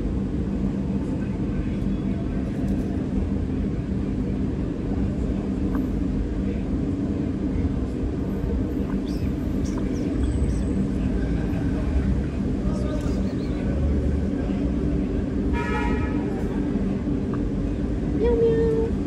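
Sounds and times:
low street rumble: 0.0s - 19.0s.

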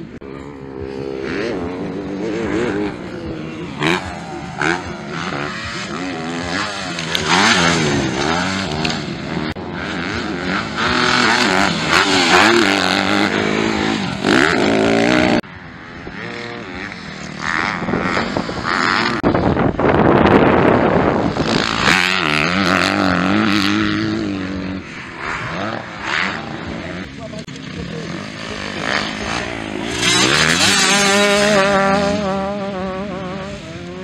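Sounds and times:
motocross bike engines revving: 0.0s - 34.0s.

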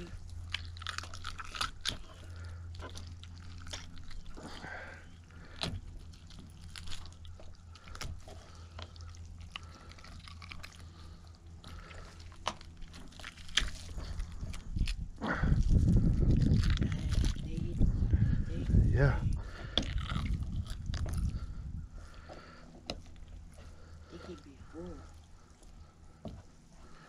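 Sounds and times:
wet squishing of fish entrails: 0.0s - 17.9s.

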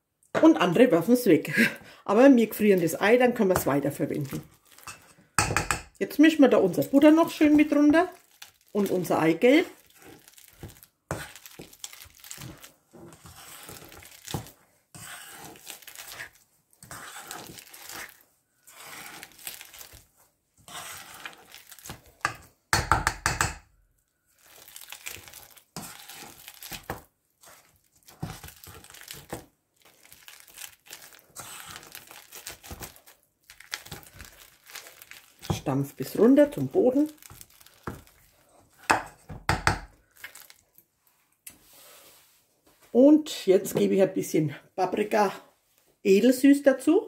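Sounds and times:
masher squishing in metal bowl: 6.9s - 22.8s, 24.3s - 40.7s.

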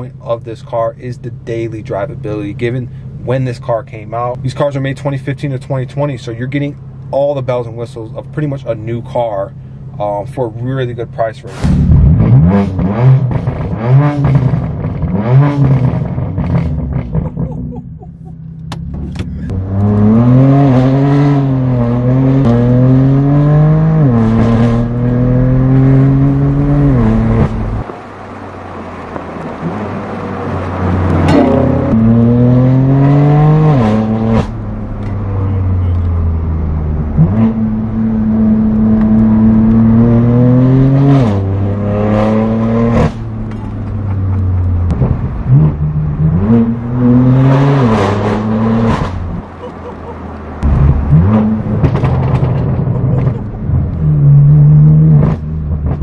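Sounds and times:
exhaust cracks: 10.2s - 23.2s, 24.0s - 32.8s, 33.5s - 40.4s, 41.0s - 56.0s
car engine revving through gears: 11.6s - 17.5s, 18.6s - 27.9s, 28.9s - 56.0s.

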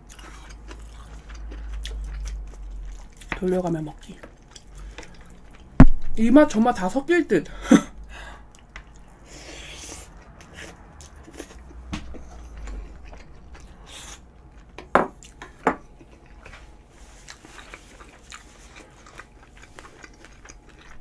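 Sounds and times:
wet chewing mouth noises: 0.0s - 3.4s, 8.4s - 21.0s.

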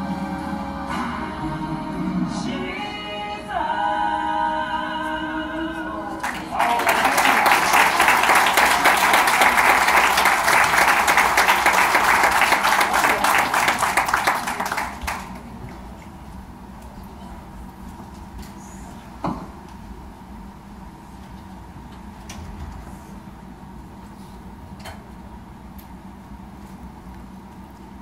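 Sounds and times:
recorded music track: 0.0s - 8.8s
crowd applause and cheering: 6.2s - 15.7s.

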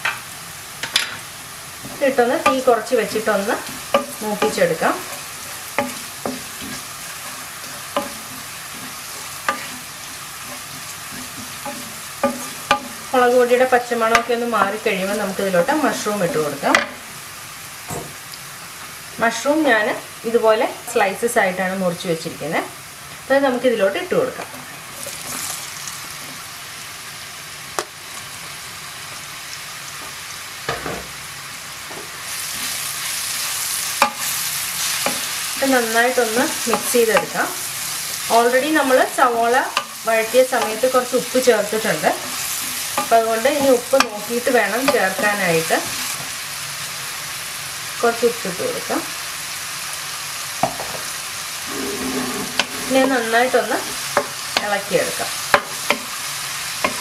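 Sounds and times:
onions sizzling in a pan: 0.0s - 57.0s
spatula scraping a pan: 3.3s - 13.1s, 51.7s - 54.6s
spatula knocking on a pan: 3.7s - 4.9s, 8.0s - 8.4s, 11.2s - 13.0s, 55.5s - 56.1s.

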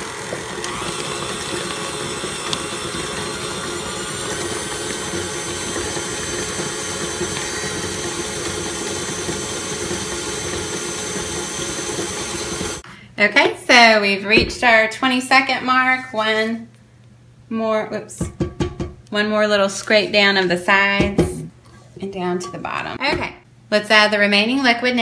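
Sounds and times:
stand mixer motor hum: 0.0s - 12.8s.

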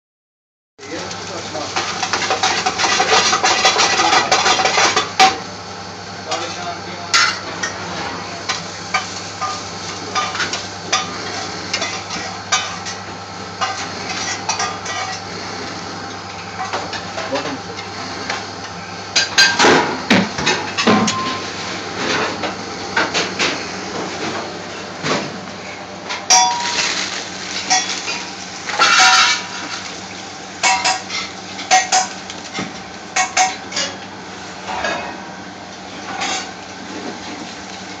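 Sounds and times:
utensils and dishes clinking: 0.9s - 5.4s, 6.3s - 7.8s, 26.1s - 30.0s, 30.6s - 34.0s, 34.6s - 35.4s, 36.0s - 36.6s.

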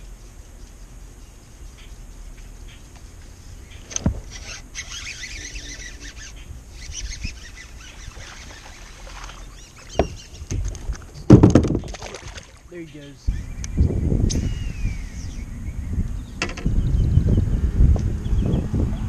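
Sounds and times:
fish thrashing and splashing: 7.4s - 12.7s.

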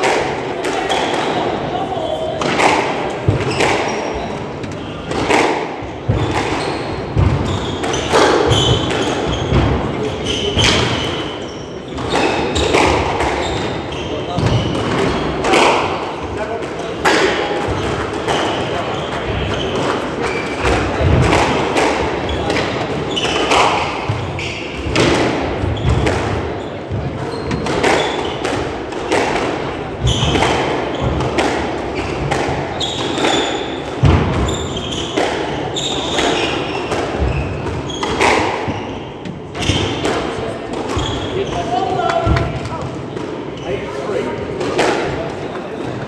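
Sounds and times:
shoes squeaking on wooden floor: 3.3s - 4.8s, 6.1s - 15.3s, 22.3s - 25.0s, 25.6s - 28.4s, 31.9s - 33.8s, 34.4s - 40.0s, 40.8s - 42.8s.

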